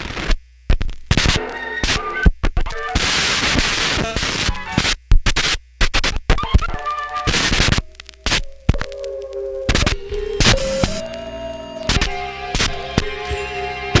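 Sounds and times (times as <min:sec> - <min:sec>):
dense turntable hiss: 0:00.0 - 0:13.8
wavering held tones: 0:06.8 - 0:14.0.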